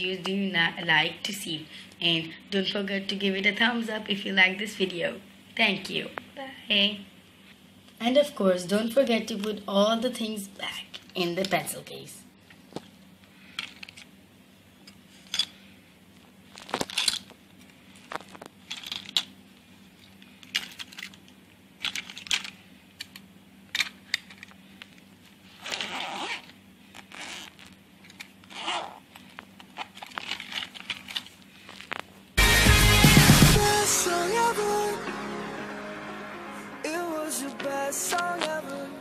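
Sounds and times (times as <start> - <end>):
pencil case rustling: 16.5 - 17.3, 24.8 - 32.2.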